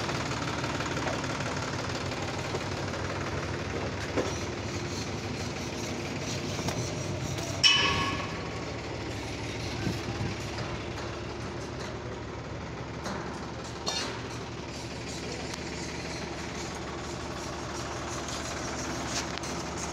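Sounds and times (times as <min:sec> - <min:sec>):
sharp metal clang: 0:07.6 - 0:08.4.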